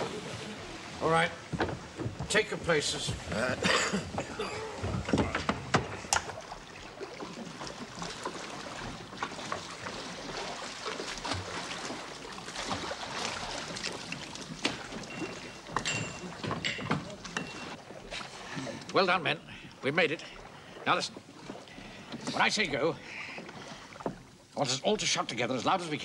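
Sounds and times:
oars splashing in water: 0:00.0 - 0:26.0
wooden knocks: 0:01.4 - 0:06.5.

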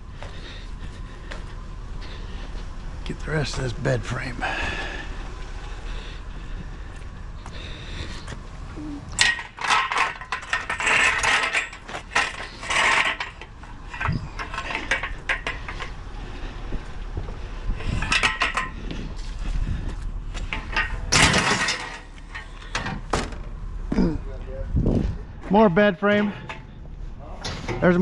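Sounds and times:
steel bed frame clanking: 0:09.0 - 0:16.1, 0:17.8 - 0:19.0, 0:20.4 - 0:23.5.

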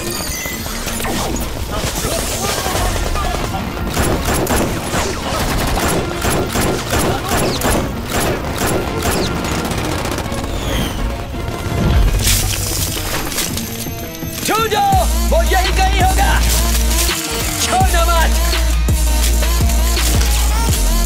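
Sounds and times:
rapid automatic gunfire: 0:00.8 - 0:12.3
background music score: 0:00.8 - 0:21.0.

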